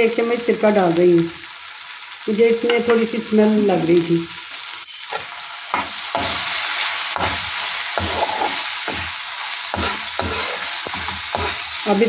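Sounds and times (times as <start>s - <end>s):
meat sizzling in oil: 0.0s - 12.0s
metal spoon scraping wok: 4.8s - 12.0s.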